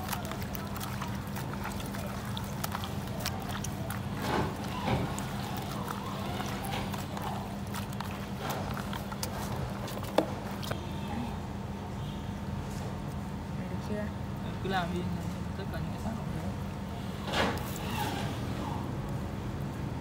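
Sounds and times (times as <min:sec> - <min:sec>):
wet squelches and clicks: 0:00.0 - 0:11.0, 0:17.5 - 0:19.8.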